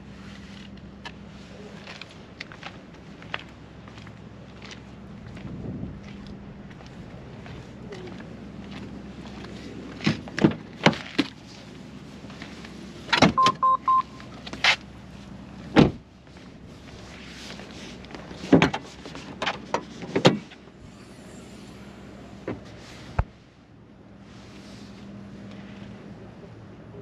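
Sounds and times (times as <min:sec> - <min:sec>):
clicks and knocks handling car: 0:10.0 - 0:11.4, 0:13.1 - 0:13.6, 0:18.1 - 0:20.7
short electronic beeps: 0:13.4 - 0:14.3.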